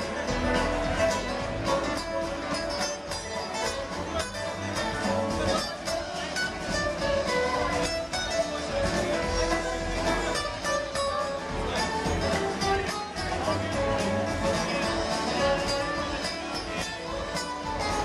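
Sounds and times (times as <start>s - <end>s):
live string band playing: 0.0s - 18.0s
steady drumbeat: 0.0s - 18.0s.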